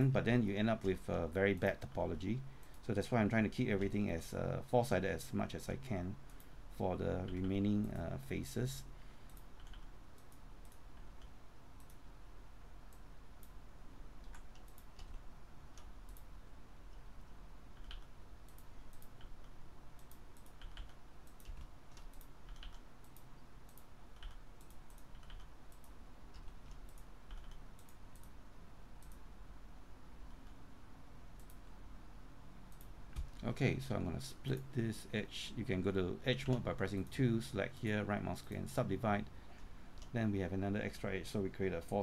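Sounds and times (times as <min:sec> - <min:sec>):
faint low hum: 0:00.0 - 0:42.0
keyboard keystrokes: 0:20.0 - 0:28.3.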